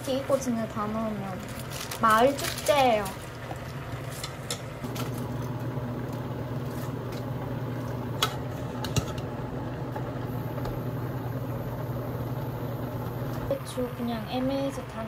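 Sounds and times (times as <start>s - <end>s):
low appliance hum: 0.0s - 15.0s
spoon stirring in a pot: 3.1s - 5.2s, 6.6s - 9.3s.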